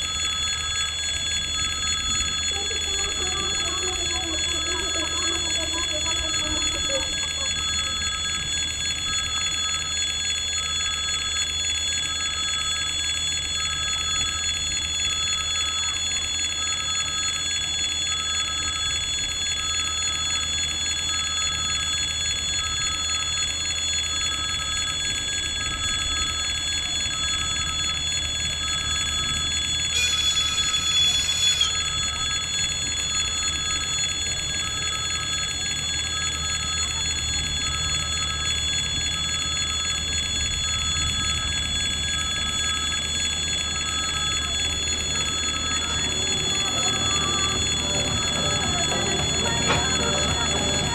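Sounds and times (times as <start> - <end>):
level crossing bell ringing: 45.8 - 50.9.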